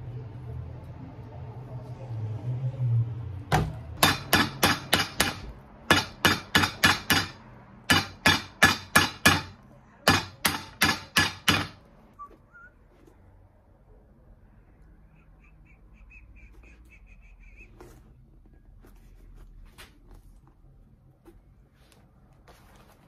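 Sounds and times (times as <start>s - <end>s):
hammer striking rubber sole: 3.5s - 11.8s.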